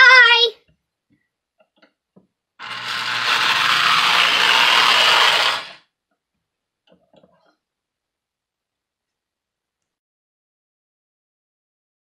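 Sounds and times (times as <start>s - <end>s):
toy train motor grinding: 2.6s - 5.8s.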